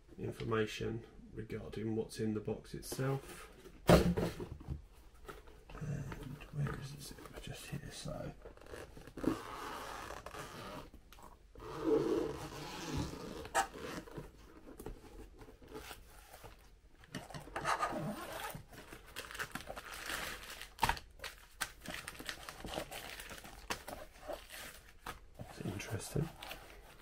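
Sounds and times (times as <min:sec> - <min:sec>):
zipper being pulled: 0:08.6 - 0:10.9, 0:11.6 - 0:14.2, 0:17.6 - 0:18.6.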